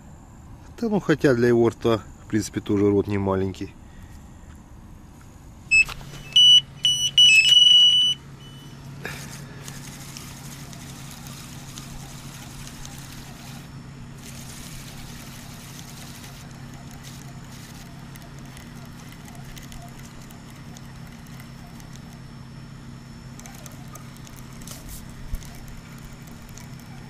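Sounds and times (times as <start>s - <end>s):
electronic bite alarm beeping: 5.7s - 8.9s.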